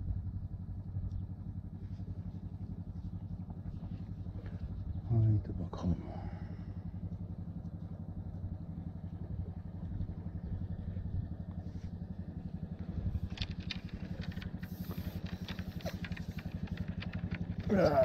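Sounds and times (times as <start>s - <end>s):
small engine chugging: 0.0s - 18.0s
light clicks and taps: 13.2s - 18.0s.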